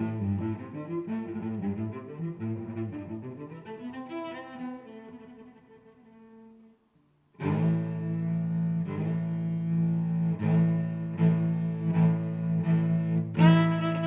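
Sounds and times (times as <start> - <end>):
music with long held notes: 7.4 - 14.0.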